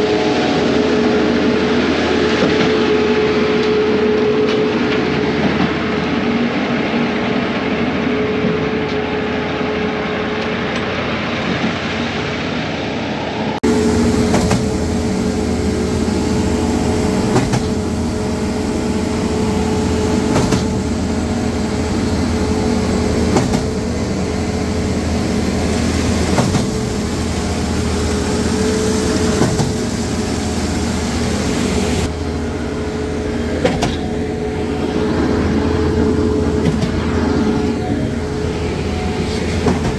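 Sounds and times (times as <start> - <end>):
diesel engine running under load: 13.6 - 39.9
sharp knock of concrete pump: 17.3 - 17.8, 20.3 - 20.8, 23.3 - 23.8.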